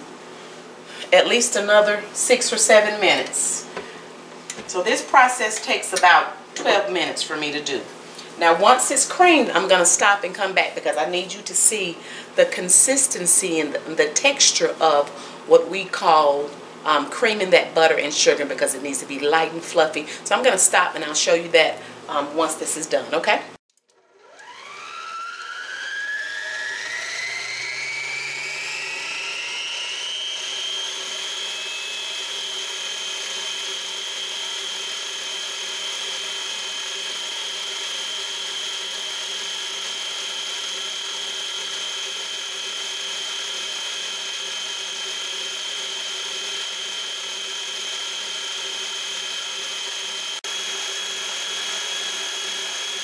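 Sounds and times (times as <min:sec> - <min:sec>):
stand mixer motor whine: 0:23.8 - 0:53.0.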